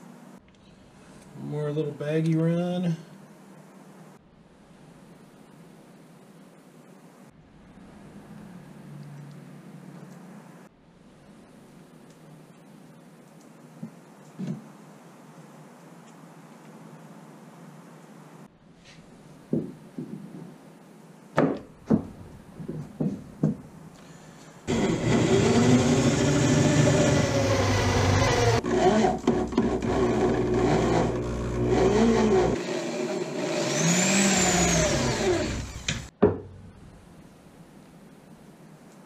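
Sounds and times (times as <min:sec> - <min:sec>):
knocks and taps: 0:19.5 - 0:20.2
electric drill driving screws: 0:24.7 - 0:36.1.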